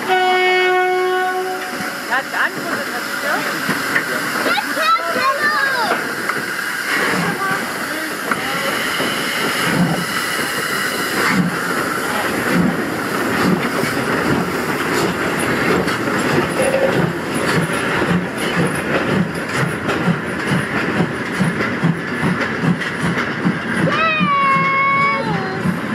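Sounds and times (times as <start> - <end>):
steam locomotive exhaust chuffs: 0.0 - 25.9
steam hiss: 1.7 - 19.2.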